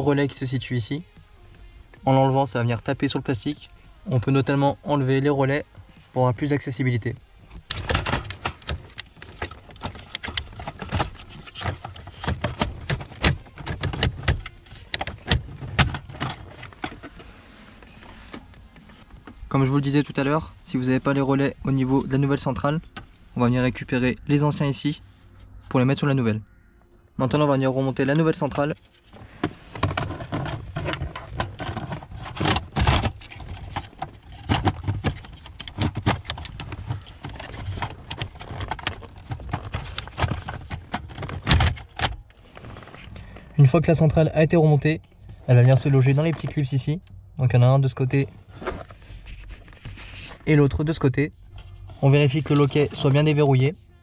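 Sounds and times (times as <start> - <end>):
hard plastic clicks and knocks: 7.6 - 17.2
plastic relays clicking and rattling: 7.7 - 17.3, 29.8 - 42.2.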